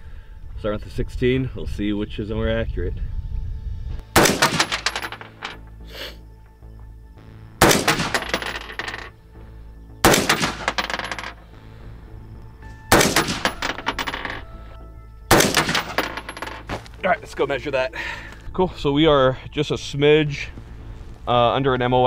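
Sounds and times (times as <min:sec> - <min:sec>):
rifle shots with echo: 0:04.2 - 0:05.3, 0:07.6 - 0:09.0, 0:10.0 - 0:11.3, 0:12.9 - 0:14.4, 0:15.3 - 0:16.5.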